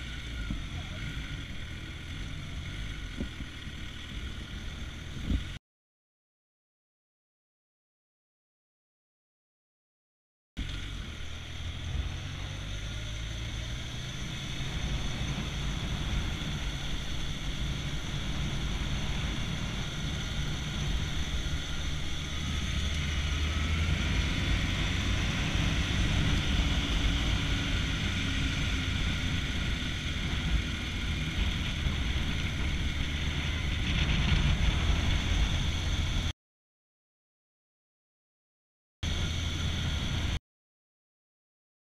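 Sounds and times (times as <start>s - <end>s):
motorcycle engine running: 0.0s - 5.6s, 10.6s - 36.3s, 39.0s - 40.4s
wind noise on microphone: 14.6s - 36.3s.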